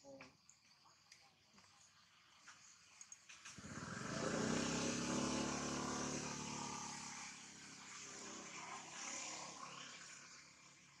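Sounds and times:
motorbike engine passing by: 0:03.4 - 0:11.0.

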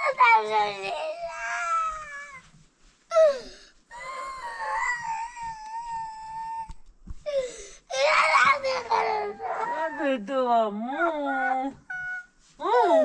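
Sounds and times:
young child crying: 0:03.1 - 0:10.0.

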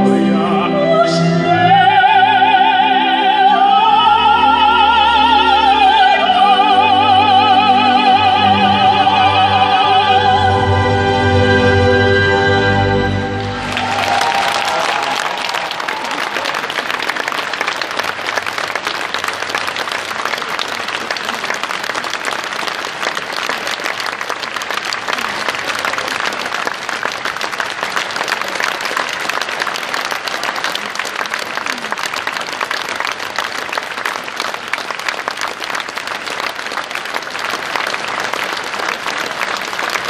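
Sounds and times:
audience applauding: 0:13.3 - 0:40.0.

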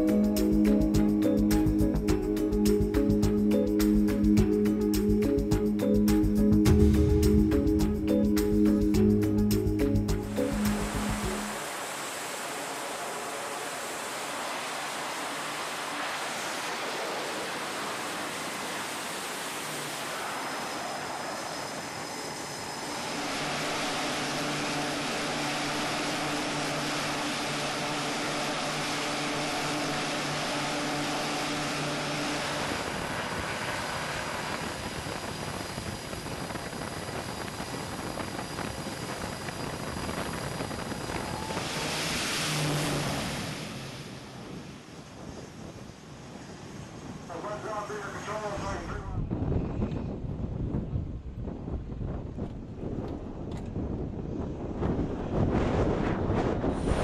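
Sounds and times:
low humming tone: 0:00.0 - 0:45.4
turboprop engines droning: 0:00.0 - 0:57.0.

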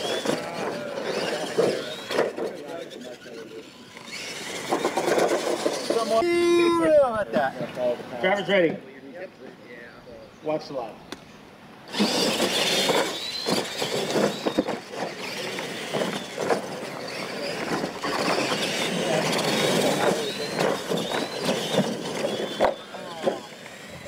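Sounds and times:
tyres scrabbling on dirt: 0:00.0 - 0:06.3, 0:11.9 - 0:24.0
toy truck motor whine: 0:00.0 - 0:06.5, 0:11.9 - 0:24.0
trucks bouncing knocks: 0:04.0 - 0:06.2, 0:11.9 - 0:23.7.

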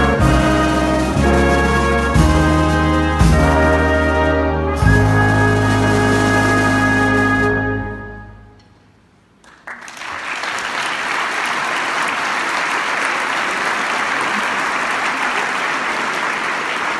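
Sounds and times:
big band held chord: 0:00.0 - 0:08.9
audience applause: 0:09.4 - 0:16.9.

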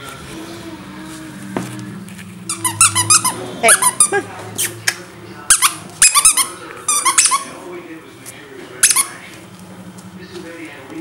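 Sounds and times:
puppies squealing and yipping: 0:02.4 - 0:04.8, 0:05.5 - 0:07.6.

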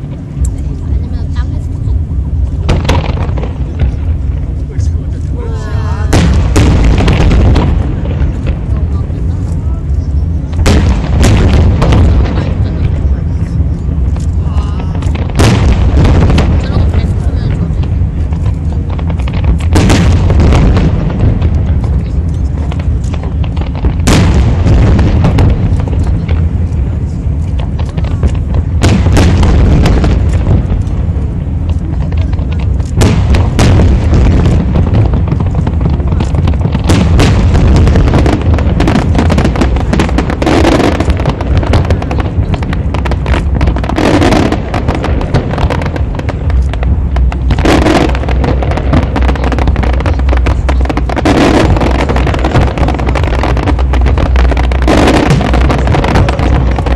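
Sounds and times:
fireworks booms and bangs: 0:00.0 - 0:56.9
steady low rumble: 0:00.0 - 0:56.9.

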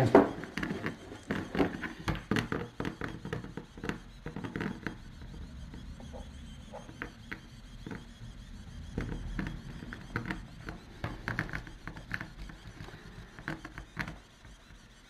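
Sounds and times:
low steady hum: 0:00.0 - 0:14.8
pen nozzle clicks and scrapes: 0:09.0 - 0:15.0.

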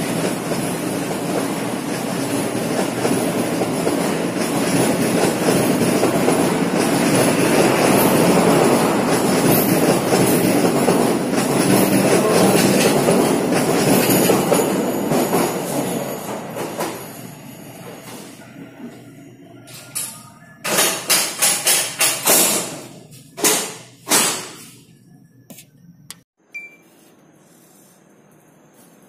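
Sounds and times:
train wheels rumbling on track: 0:00.0 - 0:19.0.

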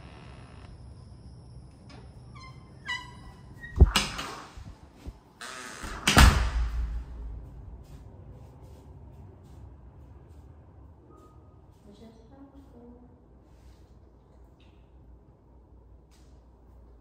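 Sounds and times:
door squeak: 0:01.9 - 0:04.5, 0:05.4 - 0:06.7.

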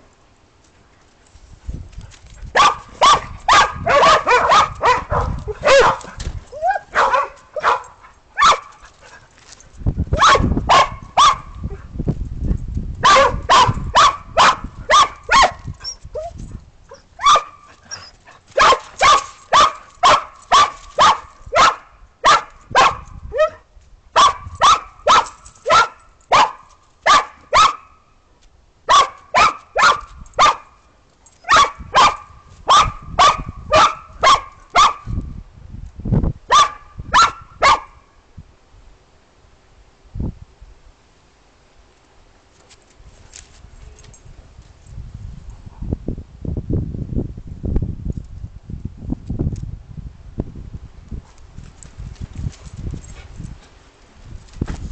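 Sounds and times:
dog barking: 0:02.6 - 0:06.1, 0:06.8 - 0:08.7, 0:10.2 - 0:11.5, 0:13.0 - 0:15.6, 0:17.2 - 0:17.6, 0:18.6 - 0:23.6, 0:24.2 - 0:27.9, 0:28.9 - 0:30.7, 0:31.5 - 0:35.0, 0:36.5 - 0:38.0.

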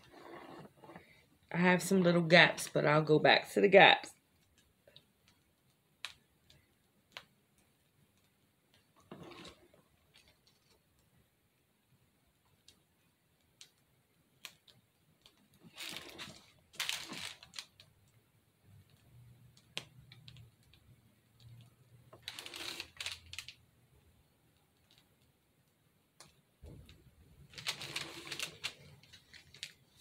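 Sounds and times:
small clicks and taps: 0:04.3 - 0:09.1, 0:12.4 - 0:15.6, 0:17.5 - 0:22.3, 0:24.5 - 0:27.1
plastic bag crinkling: 0:15.7 - 0:17.9, 0:22.2 - 0:23.6, 0:26.6 - 0:30.0.

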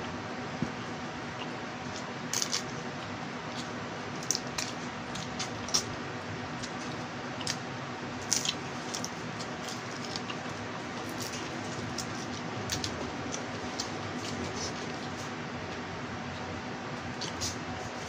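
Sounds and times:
faint steady hum: 0:00.0 - 0:18.0
wet squishing and chewing: 0:01.4 - 0:15.3.

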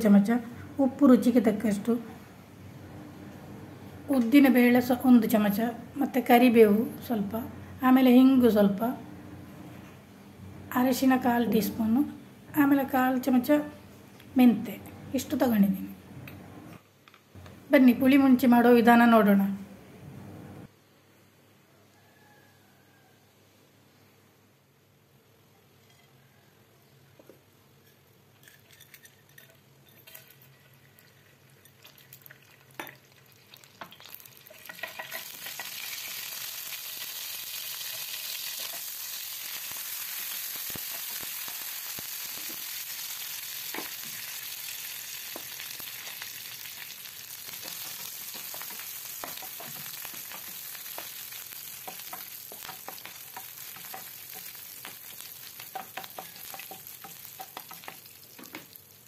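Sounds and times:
oil popping and crackling: 0:30.2 - 0:59.0
oil sizzling in a pan: 0:31.0 - 0:59.0.

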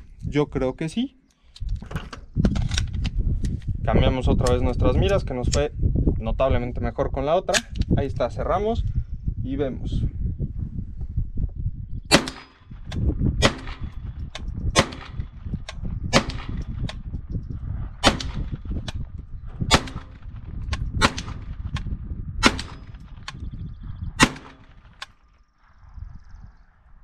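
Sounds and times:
pistol gunshots: 0:12.1 - 0:12.7, 0:13.4 - 0:14.0, 0:14.8 - 0:15.3, 0:16.1 - 0:16.9, 0:18.0 - 0:18.6, 0:19.7 - 0:20.2, 0:21.0 - 0:21.6, 0:22.4 - 0:23.1, 0:24.2 - 0:25.1.

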